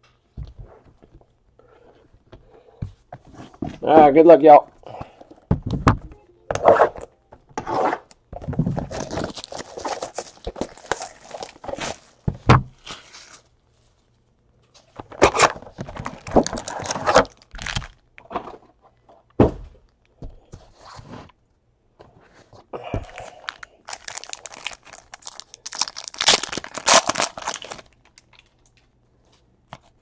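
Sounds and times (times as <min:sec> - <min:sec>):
foil packs rustling and tearing: 0:08.6 - 0:13.5, 0:15.2 - 0:18.0, 0:23.2 - 0:28.4.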